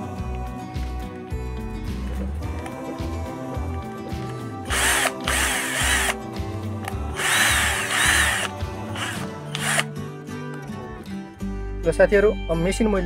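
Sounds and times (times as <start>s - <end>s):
cordless drill motor whining: 4.6s - 6.2s, 7.1s - 9.9s.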